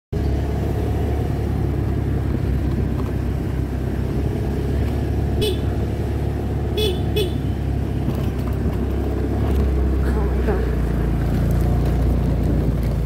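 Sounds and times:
road rumble: 0.1 - 13.0
vehicle engine running: 0.1 - 13.0
short horn beep: 5.4 - 5.7.

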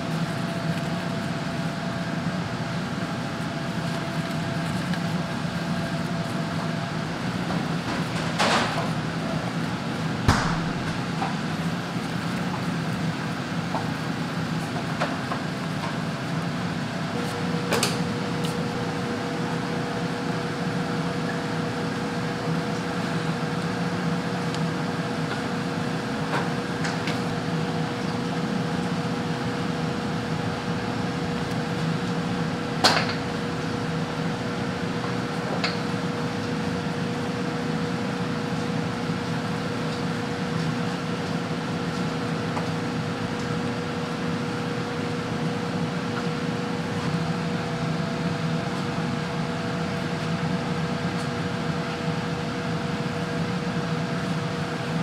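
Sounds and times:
hum of kitchen appliances: 0.0 - 55.0.

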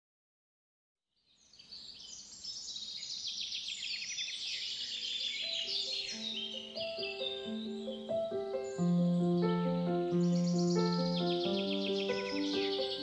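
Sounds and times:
birds chirping: 1.4 - 13.0
light melody of held notes: 5.4 - 13.0.

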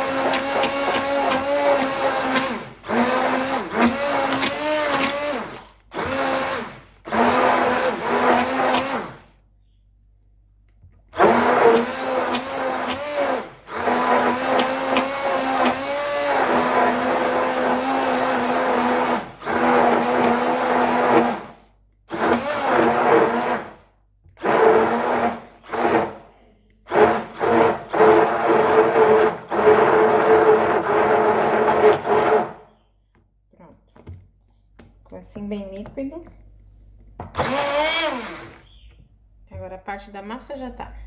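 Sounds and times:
stick blender motor hum: 0.0 - 9.3, 11.2 - 23.8, 24.4 - 26.3, 26.9 - 32.6, 37.3 - 38.8.

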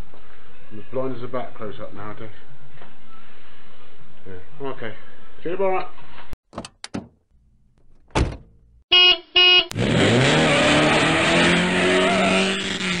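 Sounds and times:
car door shutting: 7.8 - 8.6
car horn beeps: 8.9 - 9.8
car engine starting and running: 9.7 - 13.0.

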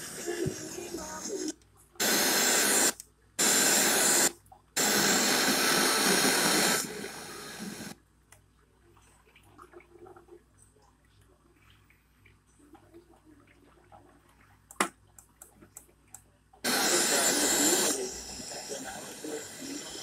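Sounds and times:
radio static hissing: 0.0 - 8.0, 16.6 - 20.0.

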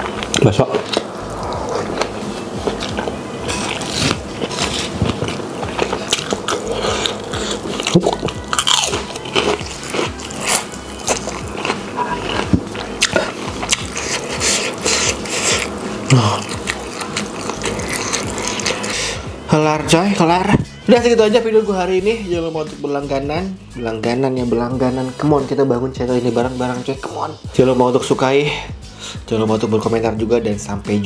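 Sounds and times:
crunchy chewing: 0.0 - 19.2.

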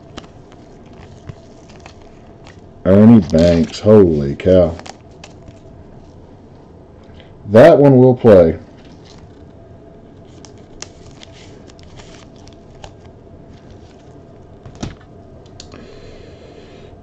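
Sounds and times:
trading cards being handled: 0.0 - 6.2, 10.2 - 15.6
steady low hum: 0.0 - 17.0.

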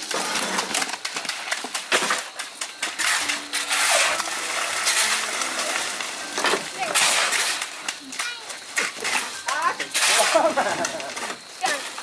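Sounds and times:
metal tools scraping wet concrete: 0.0 - 12.0.

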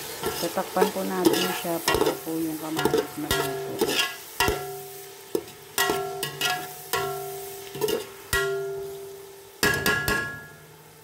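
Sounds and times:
spoon knocking on metal pot: 5.4 - 7.2, 7.8 - 8.9, 9.6 - 10.6.

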